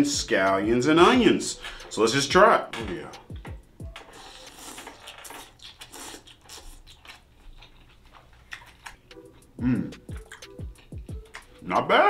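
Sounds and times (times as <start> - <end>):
chewing with mouth clicks: 3.8 - 11.6
person slurping noodles: 4.1 - 6.9.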